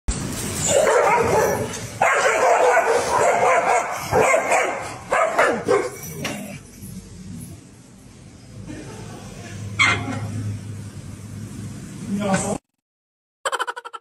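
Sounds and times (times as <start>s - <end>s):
dogs barking: 0.6s - 6.4s.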